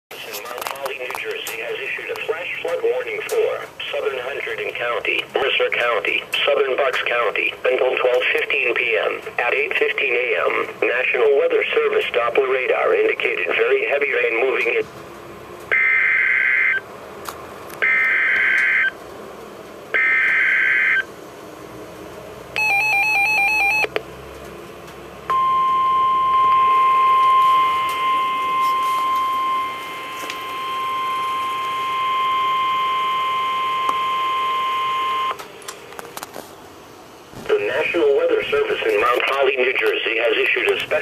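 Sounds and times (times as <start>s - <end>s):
steady warning alarm tone: 15.7s - 16.9s, 17.8s - 19.0s, 19.9s - 21.2s, 22.6s - 24.0s, 25.3s - 35.4s
short beeping: 22.6s - 23.9s.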